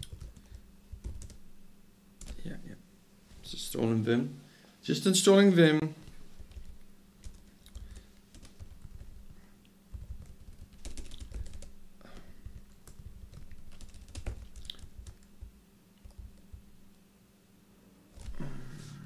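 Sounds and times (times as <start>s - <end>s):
laptop keyboard typing: 0.0s - 1.5s, 2.2s - 2.6s, 6.4s - 16.7s
low steady hum: 0.0s - 19.0s.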